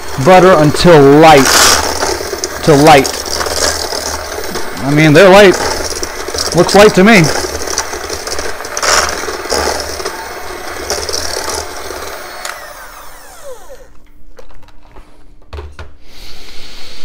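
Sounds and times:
beaters rattling against metal bowl: 0:00.0 - 0:12.6
electric hand mixer whining: 0:00.0 - 0:14.0.

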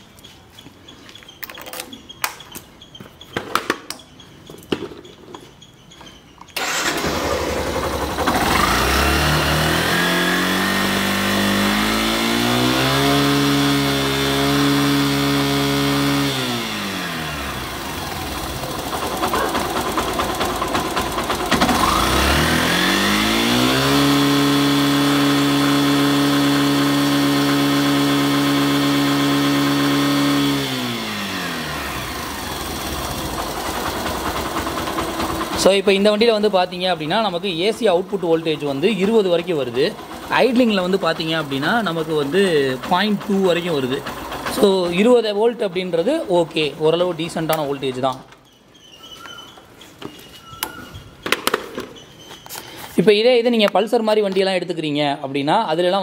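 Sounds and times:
motorcycle engine revving: 0:06.6 - 0:47.8.

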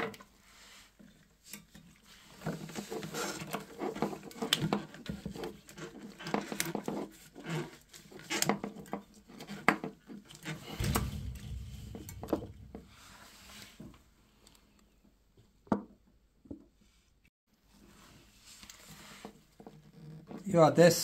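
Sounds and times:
brief low rumble: 0:10.8 - 0:13.4.

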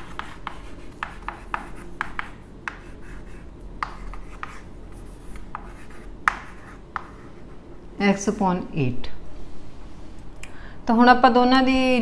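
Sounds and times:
chalk tapping and scraping on blackboard: 0:00.0 - 0:07.6.

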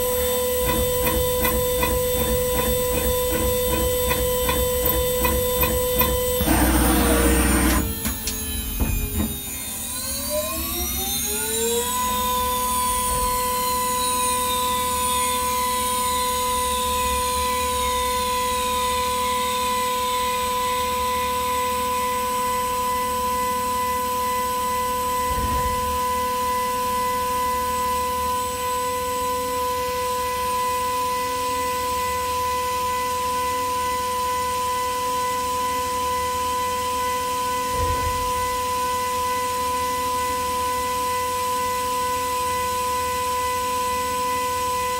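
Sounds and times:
milling spindle high whine: 0:00.0 - 0:25.2.

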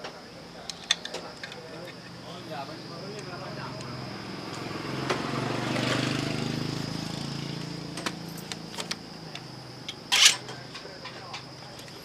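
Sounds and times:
engine droning: 0:00.6 - 0:12.0
sharp metal clank: 0:10.1 - 0:10.6.

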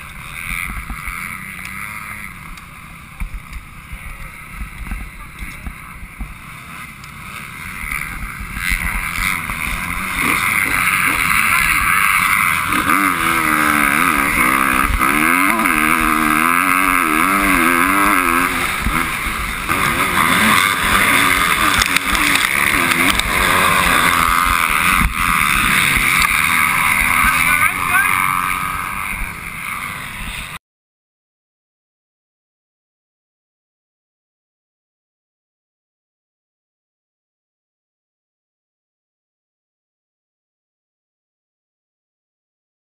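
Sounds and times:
dirt bike engine revving: 0:00.0 - 0:30.6.

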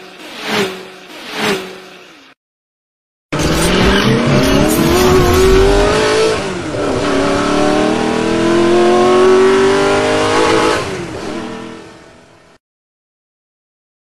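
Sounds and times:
car engine accelerating hard: 0:03.4 - 0:12.1.

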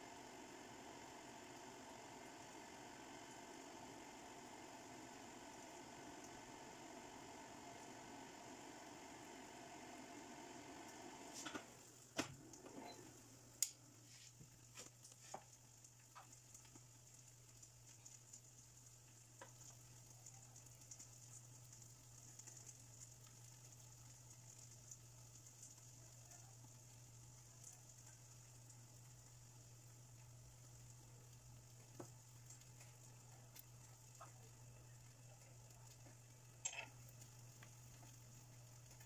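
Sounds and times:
faint steady hiss: 0:00.0 - 0:39.0.

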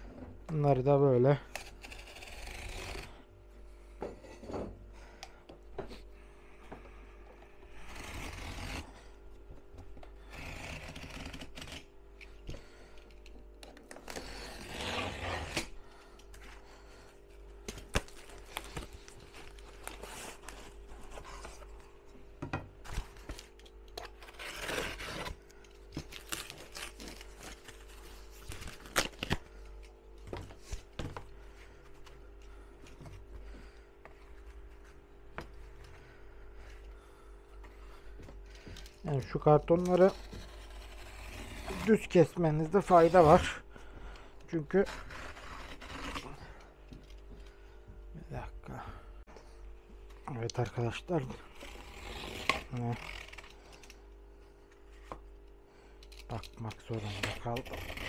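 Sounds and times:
faint steady hum: 0:00.0 - 0:58.0
cardboard being cut: 0:01.6 - 0:03.2, 0:07.7 - 0:09.1, 0:10.2 - 0:11.9, 0:13.9 - 0:15.8, 0:22.8 - 0:25.4, 0:39.7 - 0:43.6, 0:44.5 - 0:46.5, 0:51.2 - 0:53.6, 0:56.4 - 0:58.0.

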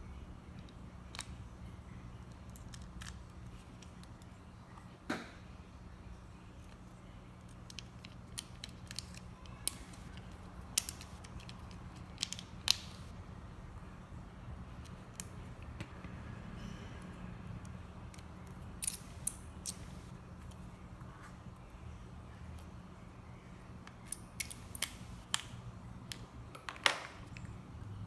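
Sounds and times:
low steady hum: 0:00.0 - 0:28.0
plastic and metal parts clicking: 0:07.5 - 0:13.0.

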